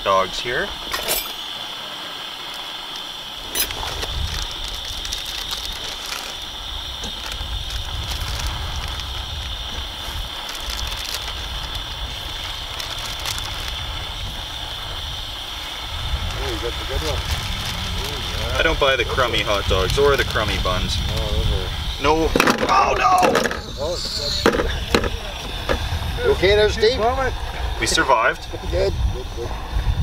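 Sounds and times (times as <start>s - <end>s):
hot dogs sizzling in a pan: 0.0s - 30.0s
low rumble: 13.1s - 27.8s.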